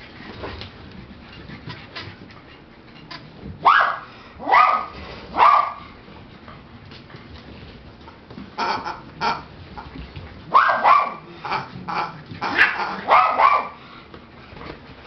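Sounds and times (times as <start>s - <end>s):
puppies barking: 3.6s - 5.8s, 10.5s - 13.8s.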